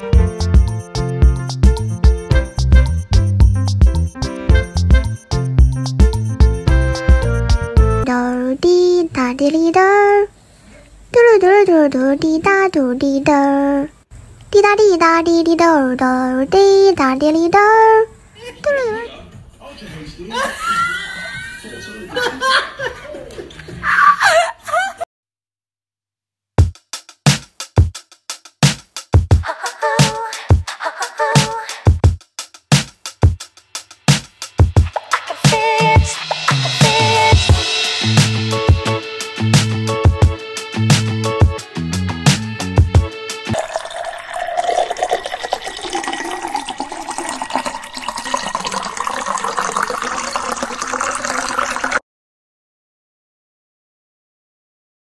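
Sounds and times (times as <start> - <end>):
music with heavy beat: 0.0 - 8.0, 26.6 - 43.6
water pouring into a glass: 43.6 - 52.0.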